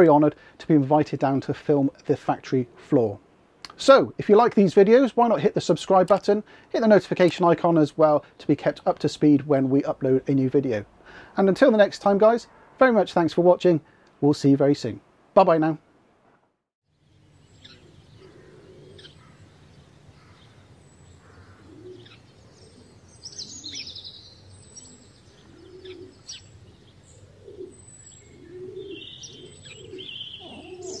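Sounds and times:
birds chirping: 16.9s - 31.0s
low cooing calls: 17.6s - 31.0s.

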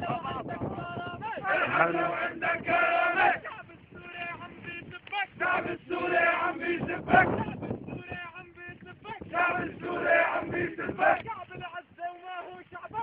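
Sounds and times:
crowd chanting in unison: 1.3s - 3.7s, 5.2s - 7.4s, 9.2s - 11.3s.

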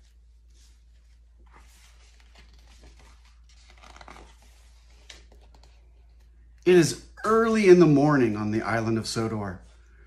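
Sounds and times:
cardboard book rustling and scraping: 0.0s - 5.9s.

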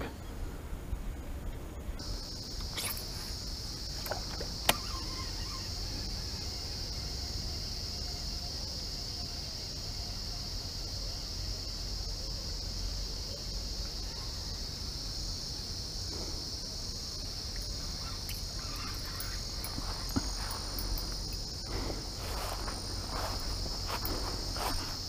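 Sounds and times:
insect chorus: 0.0s - 25.0s
footsteps in grass: 18.3s - 25.0s.

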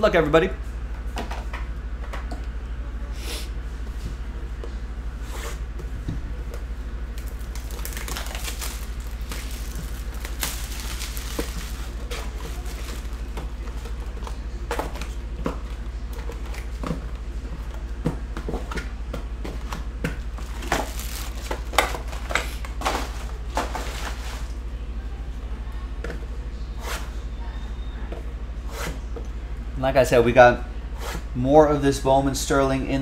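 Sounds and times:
steady low hum: 0.0s - 33.0s
plastic shrink-wrap crinkling: 7.2s - 13.7s, 20.4s - 24.6s
cardboard rustling: 7.2s - 15.2s, 20.4s - 24.6s.

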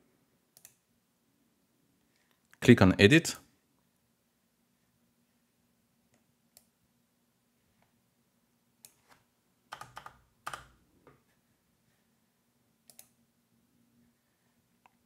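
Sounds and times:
computer keyboard clicks: 9.7s - 10.8s.

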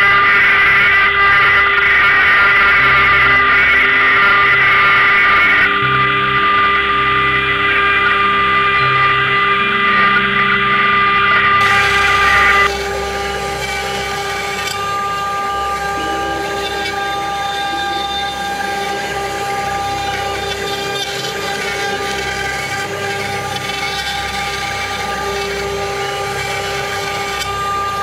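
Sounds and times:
router spindle high-pitched whine: 0.0s - 28.0s
cutter rasping through wood: 11.6s - 28.0s.

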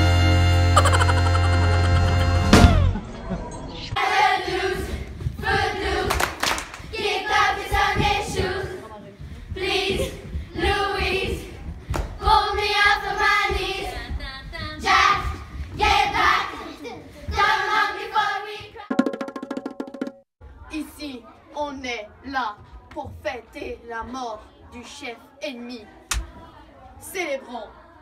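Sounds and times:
girls singing together: 4.0s - 18.9s
sharp claps: 6.1s - 6.9s.

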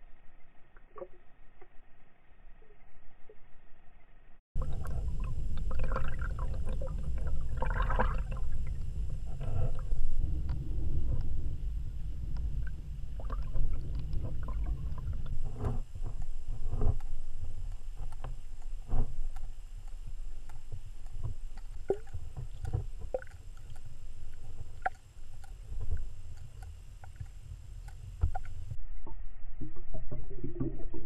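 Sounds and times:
underwater rumble of moving water: 0.0s - 31.0s
underwater clicks and knocks: 12.3s - 28.8s.

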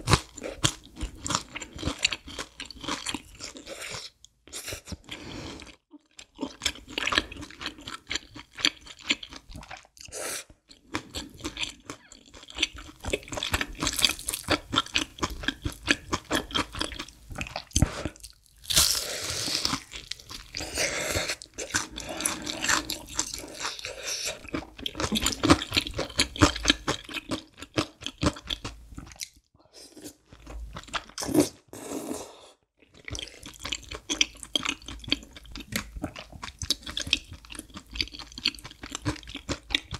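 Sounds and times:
crunchy chewing: 10.7s - 29.4s.

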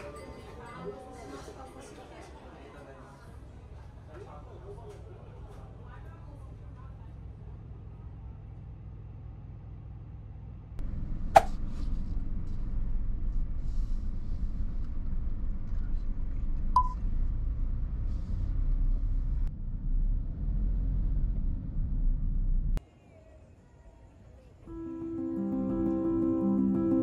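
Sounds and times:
car driving rumble: 7.2s - 22.8s.

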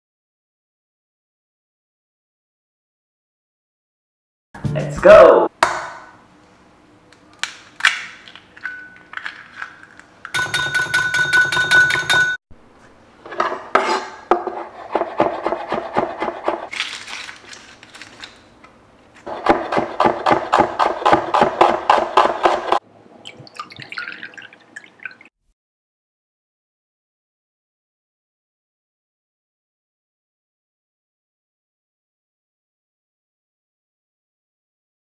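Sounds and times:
knife chopping on wooden board: 14.3s - 16.7s, 19.3s - 22.8s
liquid pouring into bowl: 23.2s - 25.3s.

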